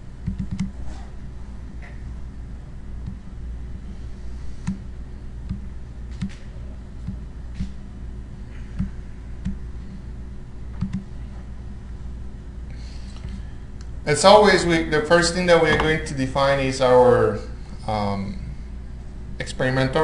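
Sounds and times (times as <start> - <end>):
low room hum: 0.0 - 20.0
mouse and keyboard clicks: 0.2 - 0.8.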